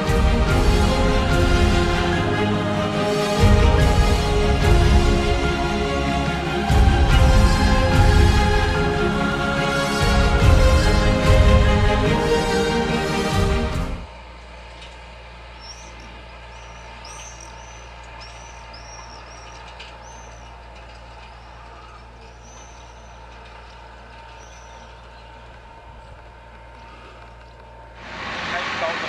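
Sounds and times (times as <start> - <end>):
distant tractor engine hum: 0.0 - 29.0
small bird chirping: 15.6 - 20.4, 24.4 - 25.0.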